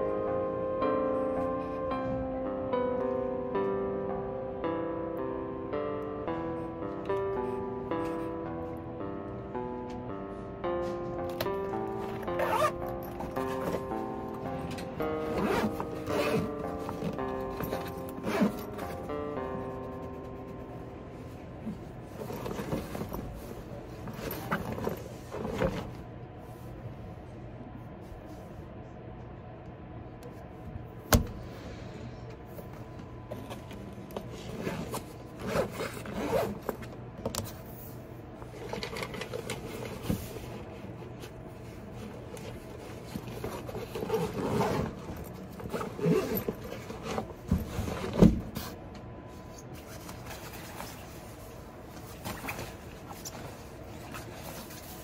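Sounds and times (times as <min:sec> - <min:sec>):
low room hum: 0:00.0 - 0:55.0
fabric rustling and scraping: 0:12.0 - 0:14.2, 0:15.0 - 0:19.1, 0:21.6 - 0:26.6, 0:33.4 - 0:36.9, 0:38.5 - 0:55.0.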